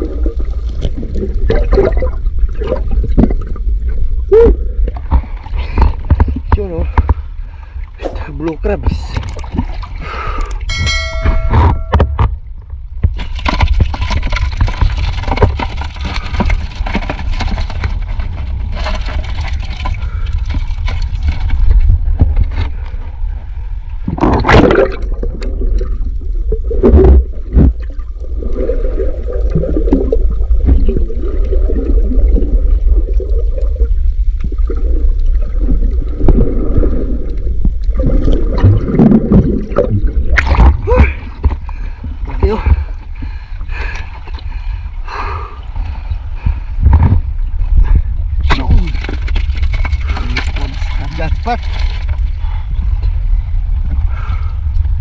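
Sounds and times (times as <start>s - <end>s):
steady low rumble: 0.0s - 55.0s
water sloshing and gurgling: 0.0s - 55.0s
sharp knocks: 10.7s - 12.3s.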